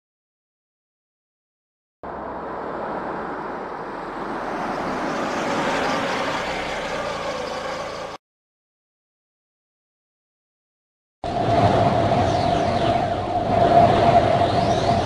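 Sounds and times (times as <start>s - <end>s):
rush of wind: 11.2s - 15.0s.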